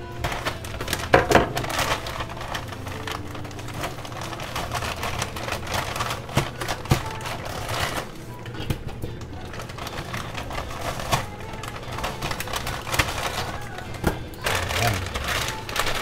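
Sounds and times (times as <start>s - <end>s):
plastic packet crinkling: 0.0s - 16.0s.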